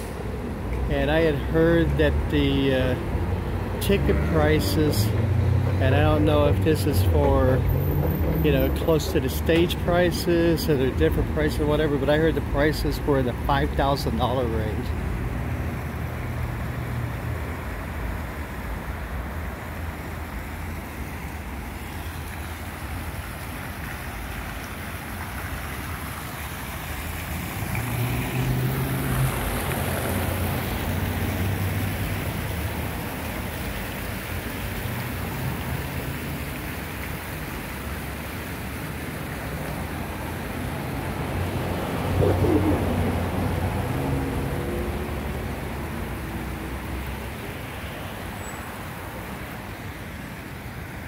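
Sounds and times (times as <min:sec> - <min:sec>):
rumble of engines and tyres: 0:00.0 - 0:51.0
vehicle passing: 0:01.2 - 0:09.0, 0:26.7 - 0:33.0, 0:40.6 - 0:47.9.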